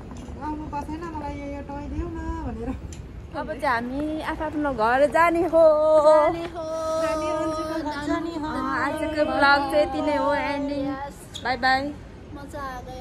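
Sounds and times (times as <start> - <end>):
woman singing long notes: 5.6 - 10.9.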